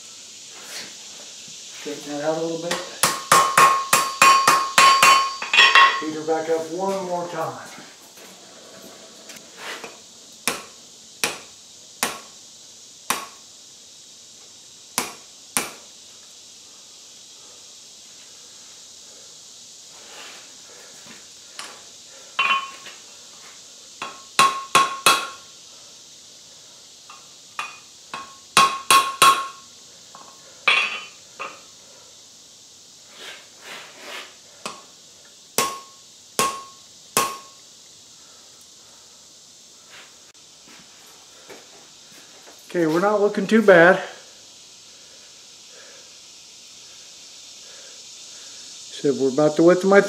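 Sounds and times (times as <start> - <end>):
steady hiss: 0.0 - 50.0
hammer striking steel on anvil: 2.7 - 6.0, 10.5 - 11.4, 12.0 - 12.3, 13.1 - 13.4, 22.4 - 22.8, 24.0 - 25.4, 27.1 - 29.6, 30.2 - 31.6, 34.6 - 34.8, 35.6 - 37.6.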